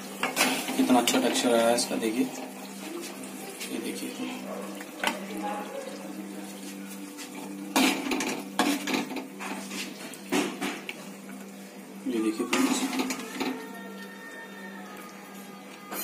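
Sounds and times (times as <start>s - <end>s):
metal spoon scraping a pan: 0.2s - 1.4s, 12.5s - 13.7s.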